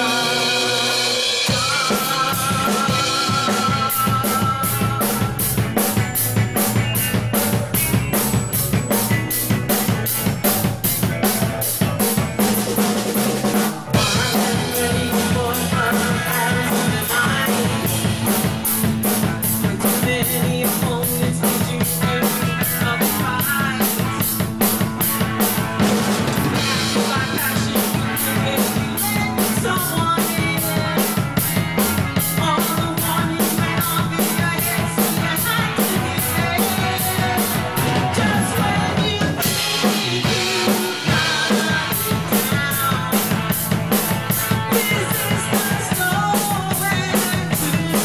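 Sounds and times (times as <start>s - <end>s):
woman singing: 0.0s - 5.6s, 14.0s - 18.5s, 19.4s - 24.4s, 26.6s - 43.7s, 44.3s - 48.0s
drum kit beat: 0.0s - 48.0s
electric guitar: 0.0s - 48.0s
keyboard: 0.0s - 48.0s.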